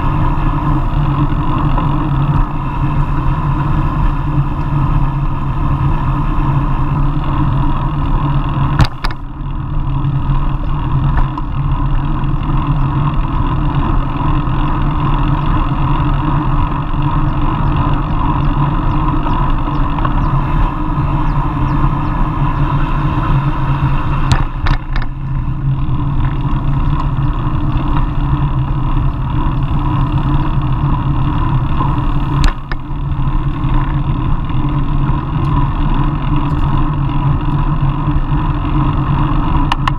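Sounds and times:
tyre and road noise: 0.0s - 39.9s
wind rushing over microphone: 0.0s - 39.9s.

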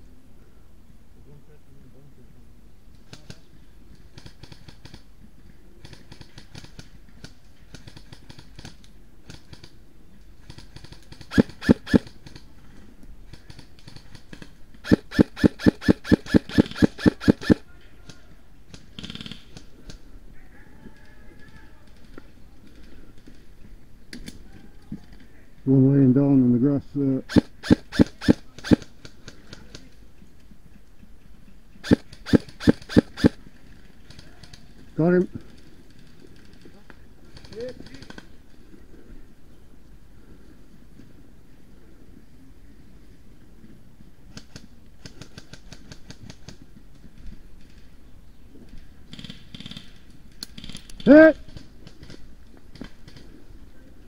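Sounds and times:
airsoft rifle shots: 10.8s - 12.2s, 14.8s - 17.6s, 27.3s - 28.9s, 31.8s - 33.4s.

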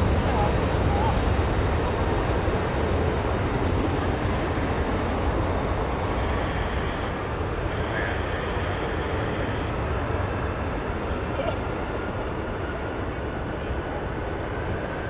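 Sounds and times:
jet engines rumbling: 0.0s - 15.0s
thin high whine: 5.9s - 9.8s.

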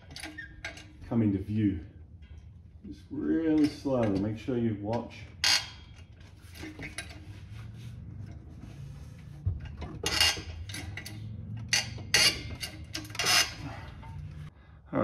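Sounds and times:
sharp metal clanks: 9.6s - 14.5s.

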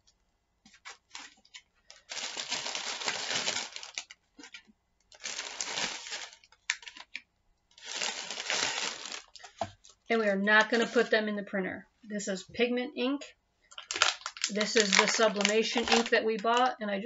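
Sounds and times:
plastic bags crinkling: 0.8s - 11.2s, 13.7s - 16.7s.

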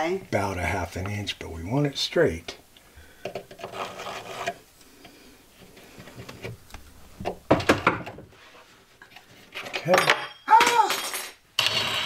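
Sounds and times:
screw grinding into wood: 3.5s - 4.6s, 11.6s - 12.0s.

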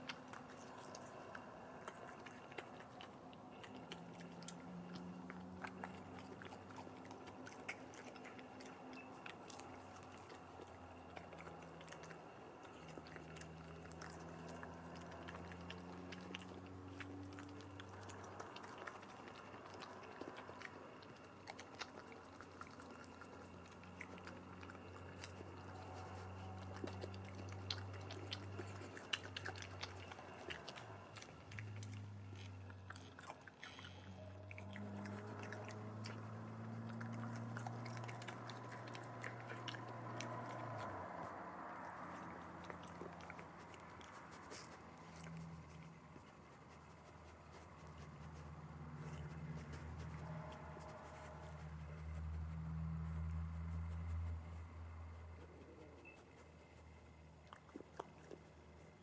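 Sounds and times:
animal crunching chips: 0.0s - 59.0s
faint low hum: 0.0s - 59.0s.

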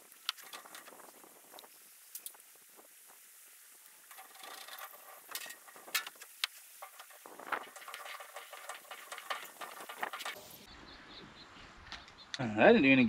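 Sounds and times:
metal tool clicks and scrapes: 4.1s - 10.6s.

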